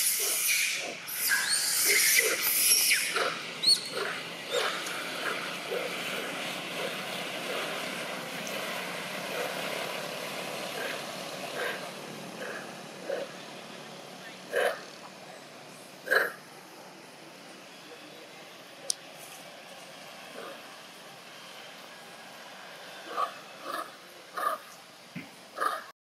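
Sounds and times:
macaques shrieking: 0.0 - 7.8, 10.8 - 13.4, 14.2 - 15.0, 16.0 - 16.4, 23.1 - 24.7, 25.6 - 25.9
steady background hiss: 0.0 - 25.9.

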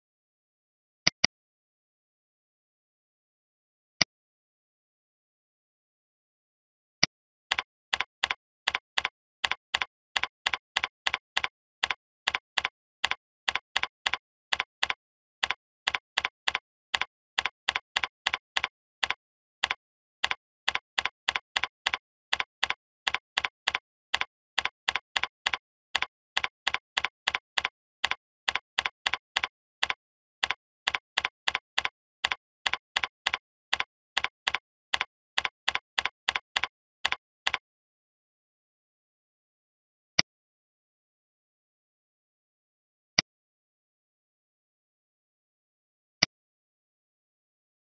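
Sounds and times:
keyboard keystroke clicks: 1.1 - 1.3, 7.5 - 37.6.

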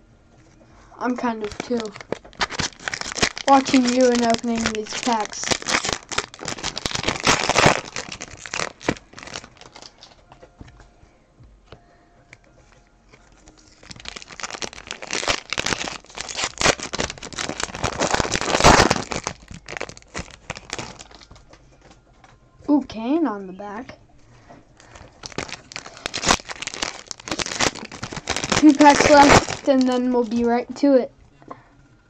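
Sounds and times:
card pack wrappers crinkling: 1.0 - 10.4, 13.1 - 21.6, 24.8 - 30.6.

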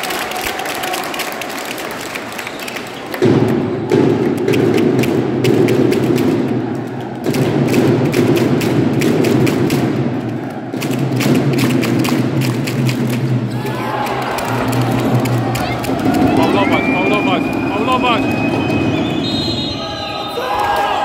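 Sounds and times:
crowd din: 12.9 - 21.0.

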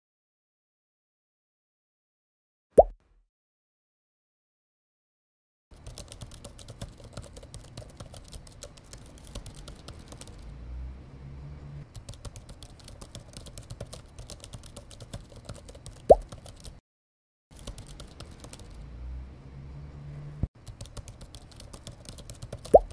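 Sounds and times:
rapid keyboard typing: 5.7 - 10.5, 11.8 - 16.8, 17.5 - 18.8, 20.6 - 22.9.

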